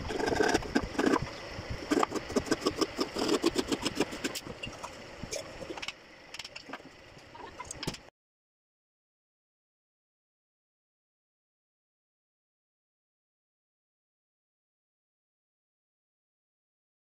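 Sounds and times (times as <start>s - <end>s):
hand blade scraping wood board: 0.0s - 4.5s.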